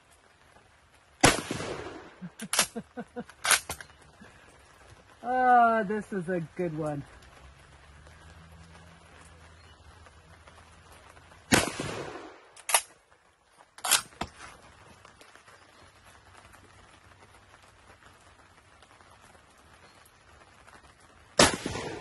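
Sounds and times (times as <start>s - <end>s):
rifle shot with echo: 1.2s - 2.7s, 11.5s - 12.9s, 21.4s - 22.0s
sharp gunshot cracks: 1.2s - 2.7s, 11.5s - 12.9s, 21.4s - 22.0s.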